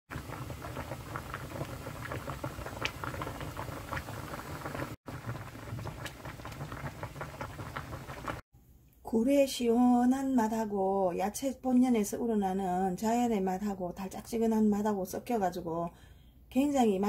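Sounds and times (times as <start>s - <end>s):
stew bubbling at a boil: 0.1s - 8.4s.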